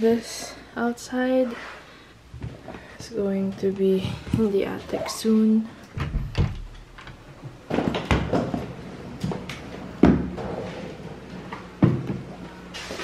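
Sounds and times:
door opening: 5.9s - 8.4s
suitcase knocks and thuds: 6.0s - 6.8s.

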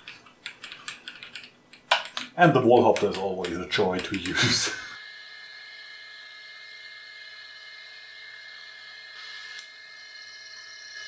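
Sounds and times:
milling machine whine: 3.0s - 11.0s.

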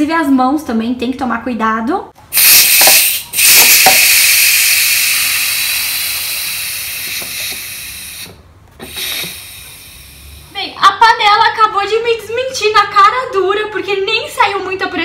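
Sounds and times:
steam hissing from pressure valve: 2.3s - 10.5s.

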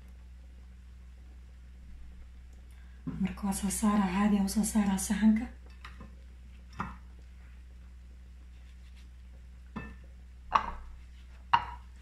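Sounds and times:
steady low hum: 0.0s - 12.0s
bowl and metal tray knocking: 9.8s - 10.9s, 11.5s - 11.9s.

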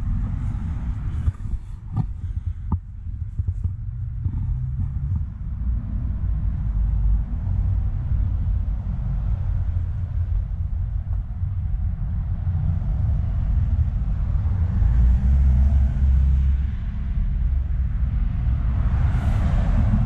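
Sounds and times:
passing vehicle tyre noise: 0.0s - 20.0s
road traffic rumble: 0.0s - 20.0s.

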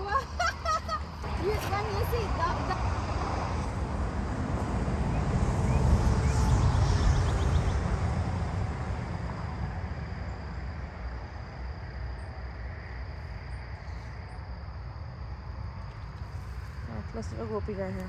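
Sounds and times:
low rumble: 0.0s - 12.6s
faint outdoor background: 0.0s - 18.0s.

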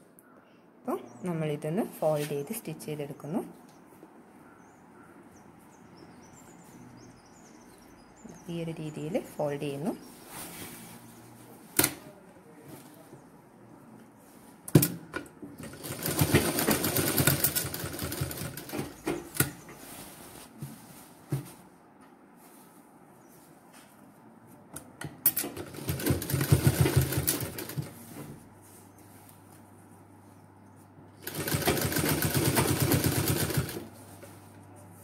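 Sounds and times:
sewing machine stitching: 15.6s - 19.5s, 25.3s - 27.9s, 31.2s - 33.9s.

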